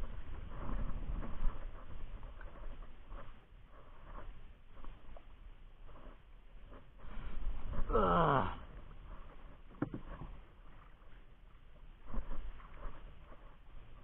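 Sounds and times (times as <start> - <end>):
person groaning: 7.9 - 8.6.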